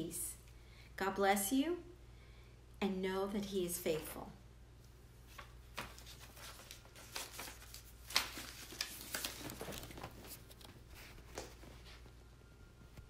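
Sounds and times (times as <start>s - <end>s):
clothing rustling: 5.2s - 12.2s.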